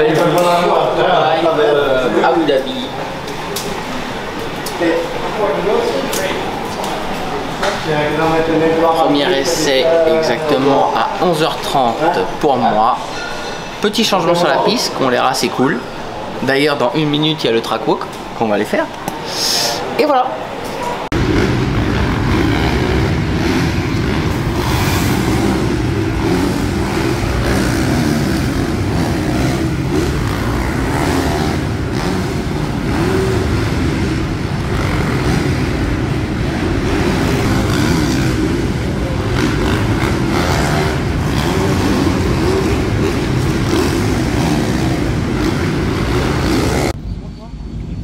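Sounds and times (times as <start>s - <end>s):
motocross bikes revving: 21.0s - 47.0s.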